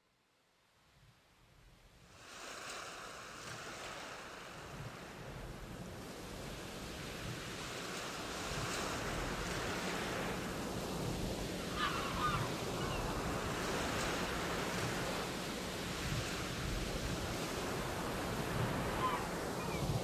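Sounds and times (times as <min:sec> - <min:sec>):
wind on microphone: 0:04.5 - 0:20.0.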